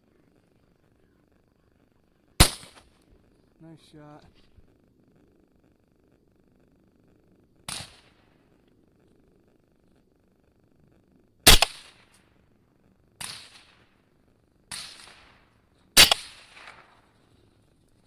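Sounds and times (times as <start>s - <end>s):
rifle shots with echo: 2.4s - 3.0s, 7.7s - 8.4s, 11.4s - 12.2s, 13.2s - 14.0s, 14.7s - 17.2s.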